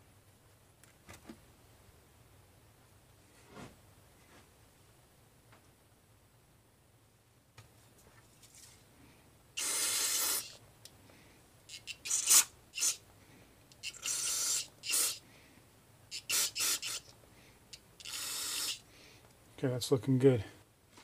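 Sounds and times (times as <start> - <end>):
air hissing blasts: 9.6 - 10.6, 11.7 - 13.0, 13.8 - 15.2, 16.1 - 17.1, 18.0 - 18.9
short air puffs: 9.6 - 10.6, 11.7 - 13.0, 13.8 - 15.3, 16.1 - 17.1, 17.7 - 19.2.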